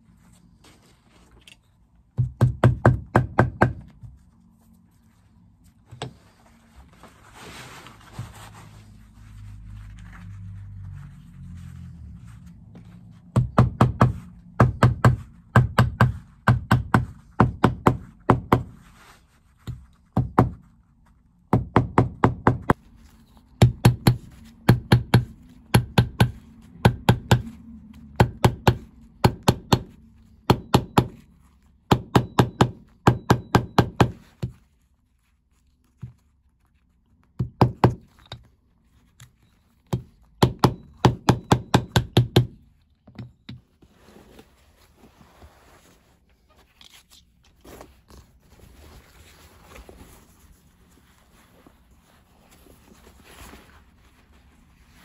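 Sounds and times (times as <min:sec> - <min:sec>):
hammer tapping leather: 0:02.1 - 0:04.1, 0:13.2 - 0:18.8, 0:19.6 - 0:20.6, 0:21.5 - 0:22.8, 0:23.6 - 0:27.6, 0:28.2 - 0:31.3, 0:31.9 - 0:34.6, 0:39.8 - 0:43.6.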